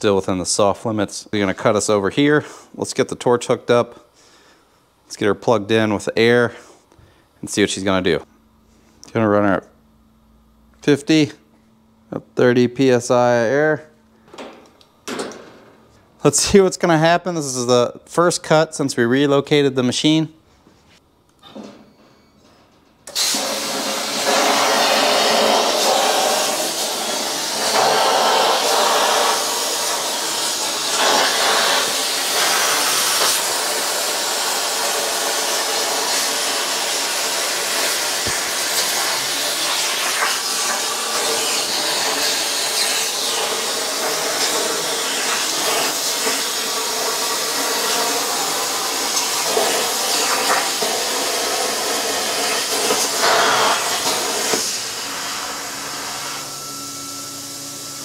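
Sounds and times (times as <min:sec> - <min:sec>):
plasma cutter torch hissing: 0:23.1 - 0:56.6.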